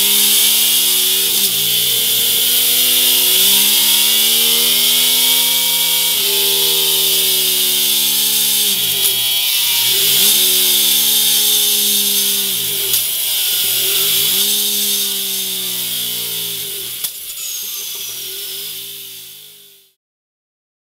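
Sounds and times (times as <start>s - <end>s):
motorcycle engine at high revs: 0.0s - 20.0s.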